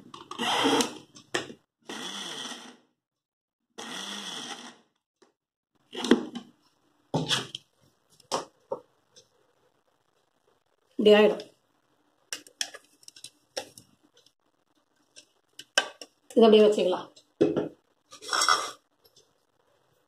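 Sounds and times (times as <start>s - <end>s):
electric mixer grinder spinning: 0.3s - 1.0s, 1.8s - 2.8s, 3.8s - 4.9s.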